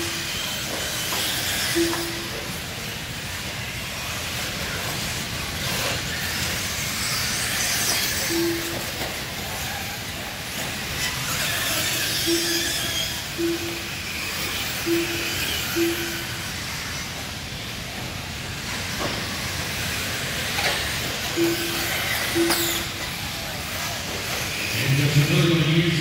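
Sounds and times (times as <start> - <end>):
short beeps: 0.0 - 0.8, 1.6 - 2.6, 8.2 - 9.7, 12.0 - 16.5, 21.3 - 24.0
small engines whining: 0.0 - 26.0.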